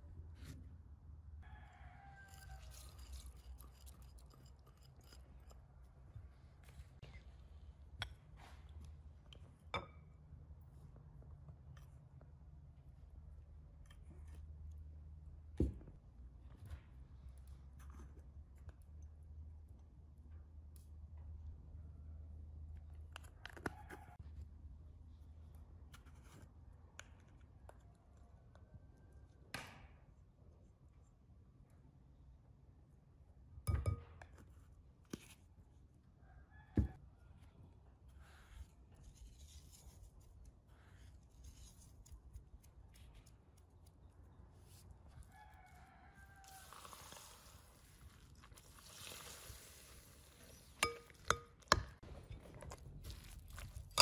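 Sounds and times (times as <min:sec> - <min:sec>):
ceramic bowl set on table: 0:00.1 - 0:16.0, 0:33.6 - 0:35.4, 0:46.2 - 0:54.0
glass jar clicks and taps: 0:50.8 - 0:51.9.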